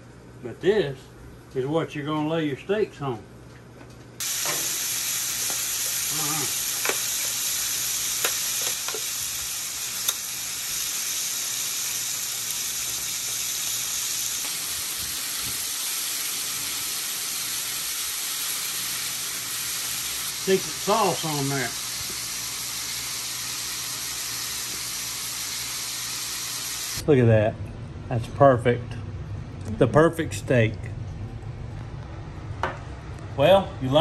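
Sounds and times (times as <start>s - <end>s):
steaks sizzling on a griddle: 4.2s - 27.0s.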